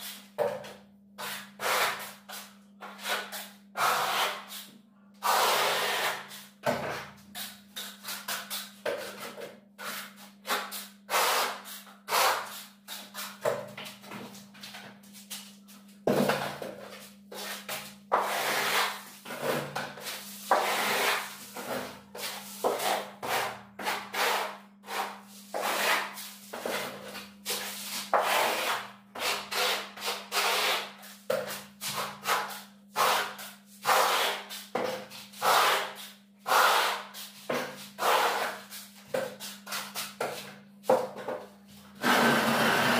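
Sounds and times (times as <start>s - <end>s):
float scraping plaster on wall: 16.1s - 40.5s, 42.0s - 42.9s.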